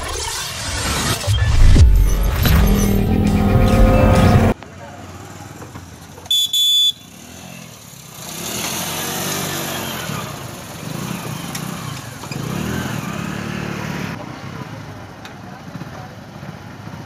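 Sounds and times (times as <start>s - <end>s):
motorcycle horn double beep: 6.3s - 7.2s
motorcycle engines running: 7.1s - 17.0s.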